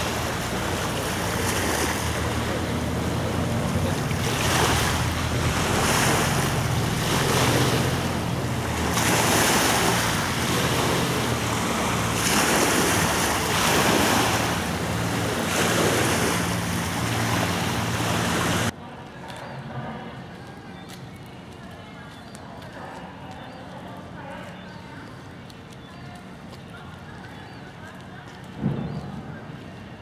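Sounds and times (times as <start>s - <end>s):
waves washing against shore: 0.0s - 18.7s
wind buffeting microphone: 0.0s - 18.7s.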